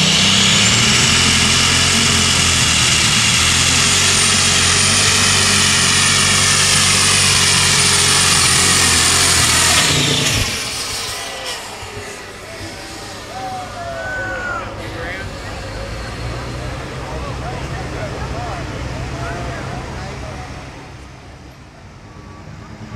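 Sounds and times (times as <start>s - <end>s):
high engine whine: 0.0s - 22.9s
tractor engine running flat out: 0.0s - 22.9s.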